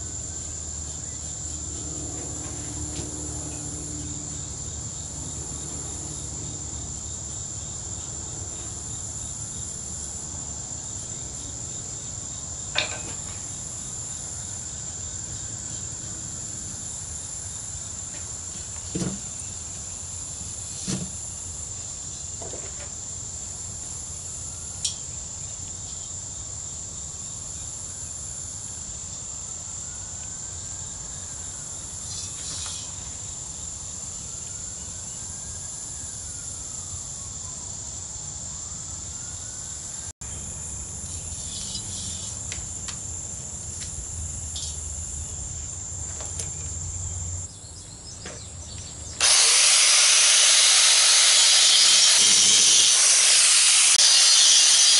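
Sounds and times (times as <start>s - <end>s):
insects trilling: 0.0s - 54.9s
angle grinder: 49.2s - 54.9s.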